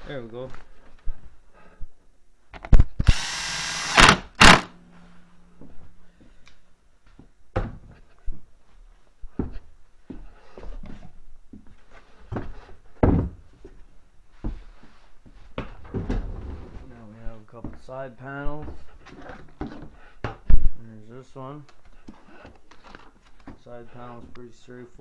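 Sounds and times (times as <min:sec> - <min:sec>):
power drill running: 0:03.0 - 0:04.8.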